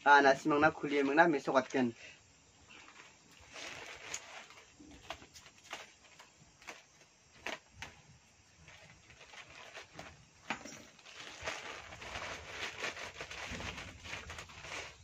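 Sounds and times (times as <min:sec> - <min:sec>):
plastic packaging crinkling: 0:02.7 - 0:08.0, 0:08.6 - 0:15.0.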